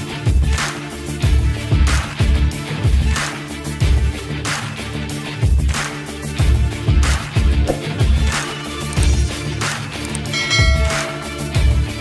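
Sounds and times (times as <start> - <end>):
electronic music with bass beat: 6.3 - 9.6, 10.3 - 12.0
bright bell-like ding: 10.3 - 11.8.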